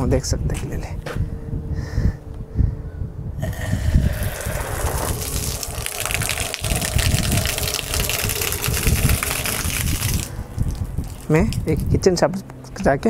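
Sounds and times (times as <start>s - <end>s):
water jet splashing on concrete: 3.4s - 11.9s.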